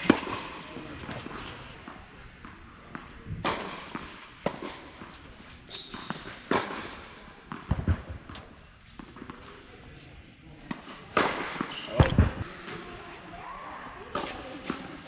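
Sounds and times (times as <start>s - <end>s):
tennis ball struck by rackets: 2.9s - 5.2s, 10.7s - 12.4s.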